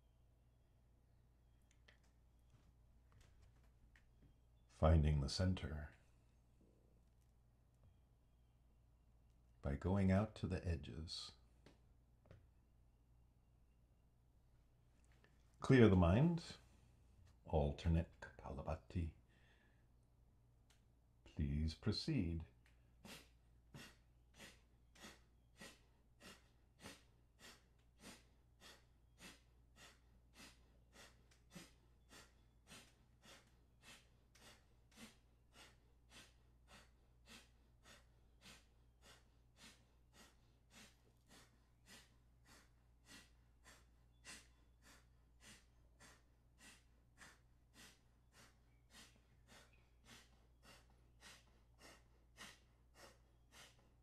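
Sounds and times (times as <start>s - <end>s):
forceful nasal exhalations: 23.0s - 53.8s.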